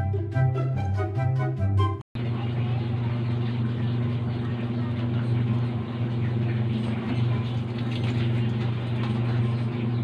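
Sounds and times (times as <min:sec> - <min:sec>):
cooker humming and hissing: 0:02.2 - 0:10.0.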